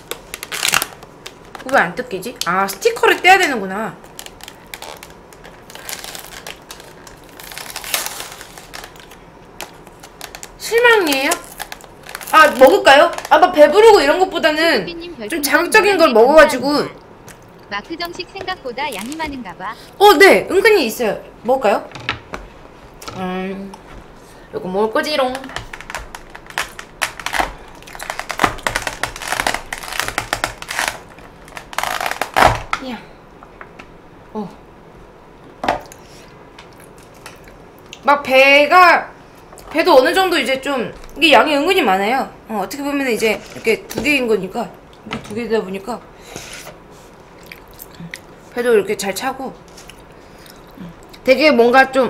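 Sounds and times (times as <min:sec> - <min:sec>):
plastic packaging crinkling: 0:00.0 - 0:03.3, 0:03.9 - 0:14.4, 0:18.9 - 0:19.9, 0:25.2 - 0:32.8
eating crackles and clicks: 0:25.2 - 0:32.8, 0:36.6 - 0:38.0, 0:47.3 - 0:48.4.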